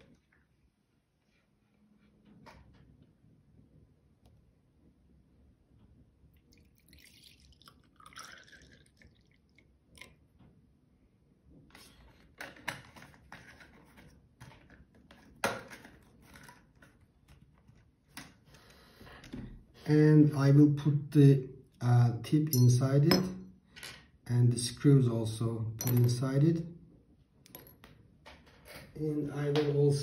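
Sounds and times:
liquid pouring into glass: 0:06.4 - 0:10.2.

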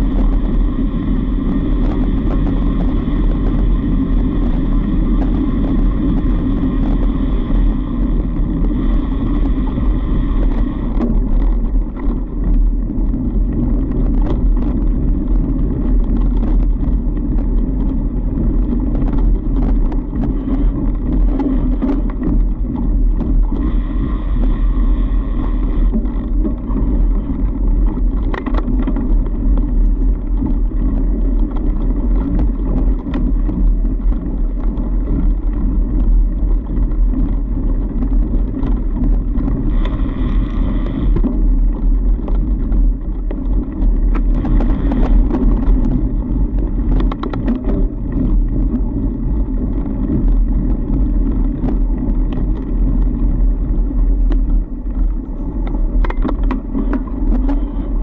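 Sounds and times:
bike clicks and rattles: 0:00.0 - 0:58.0
tyre and wind rumble: 0:00.0 - 0:58.0.

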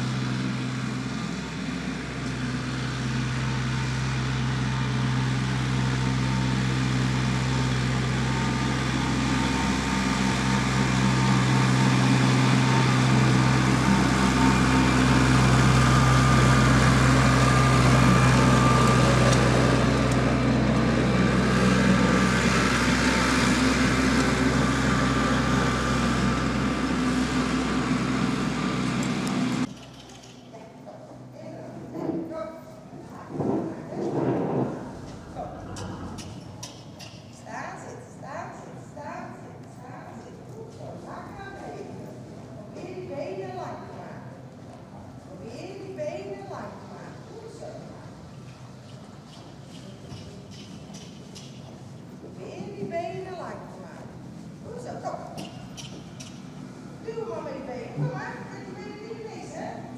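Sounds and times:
tractor engine running: 0:00.0 - 0:30.2, 0:34.1 - 0:37.1.

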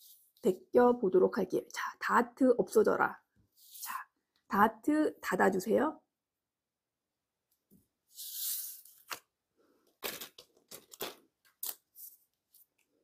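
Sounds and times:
tracing paper rustling and crinkling: 0:08.1 - 0:13.0.

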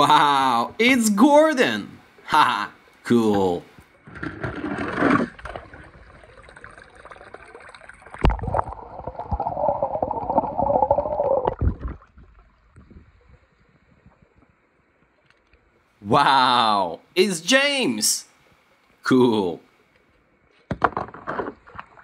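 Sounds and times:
underwater bubbling and gurgling: 0:04.0 - 0:15.8.

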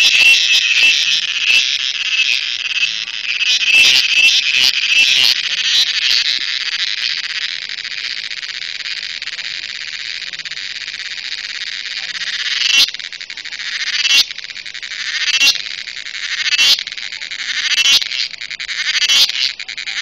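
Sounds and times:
cricket shrill buzz: 0:00.0 - 0:20.0.

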